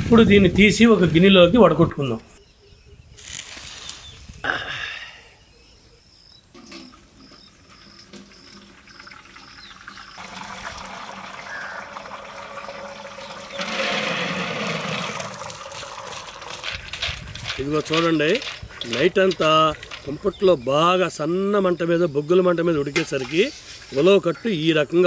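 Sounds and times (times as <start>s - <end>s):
thick liquid pouring into steel vessel: 6.7s - 20.2s
heavy splash of beans: 13.0s - 16.8s.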